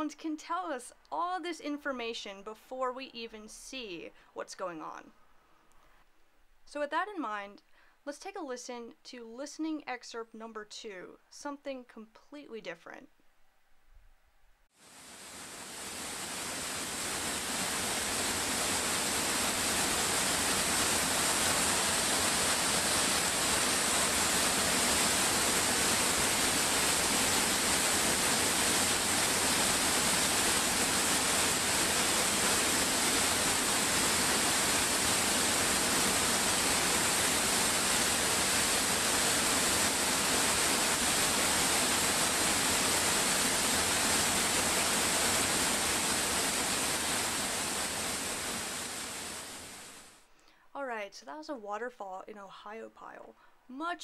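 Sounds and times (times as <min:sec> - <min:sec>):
waterfall rushing: 0:14.8 - 0:50.1.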